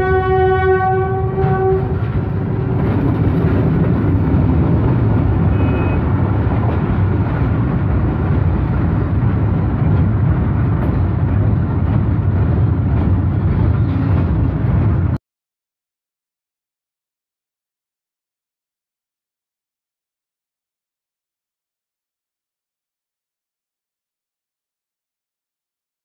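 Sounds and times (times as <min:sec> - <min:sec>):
train horn: 0:00.0 - 0:02.2, 0:05.4 - 0:06.2
freight wagons rumbling past: 0:00.0 - 0:15.2.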